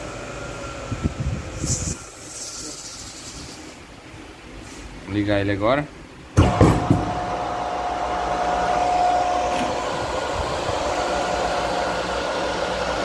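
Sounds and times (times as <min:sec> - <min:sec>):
cooling fan rush of air: 0:00.0 - 0:13.0
electric motor whine: 0:06.9 - 0:13.0.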